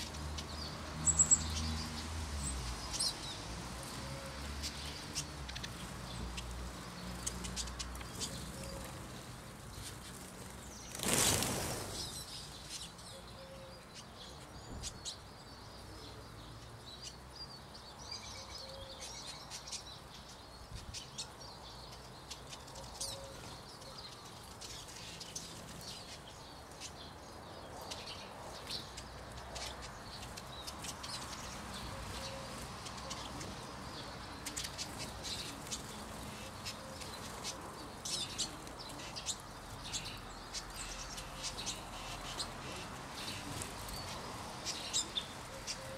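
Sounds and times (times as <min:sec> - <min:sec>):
birds chirping: 0:00.0 - 0:45.9
flurry of wingbeats: 0:07.2 - 0:12.2, 0:42.3 - 0:45.9.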